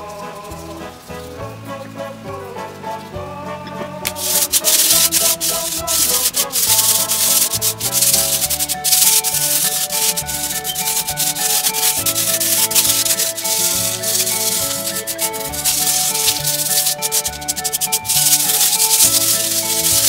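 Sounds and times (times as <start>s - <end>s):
background music: 0.0s - 20.0s
hands sweeping sand on paper: 4.1s - 20.0s.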